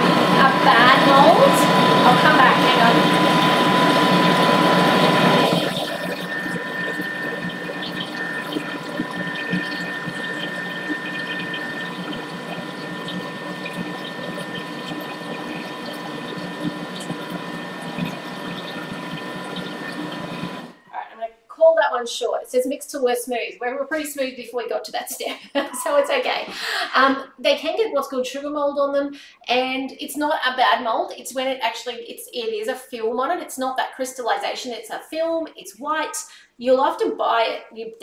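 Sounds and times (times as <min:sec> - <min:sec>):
batter churning in bowl: 0:00.0 - 0:20.7
kitchen mixer motor humming: 0:00.0 - 0:20.8.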